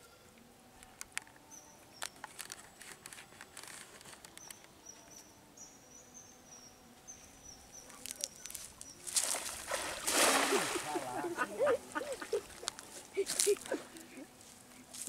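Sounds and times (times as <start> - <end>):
small water splashes and drips: 9.1 - 11.2.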